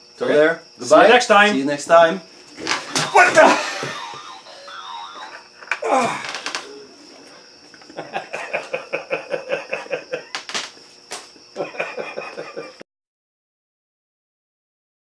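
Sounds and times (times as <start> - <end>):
hearty laughter: 2.6 - 6.5, 7.7 - 10.4, 11.5 - 12.8.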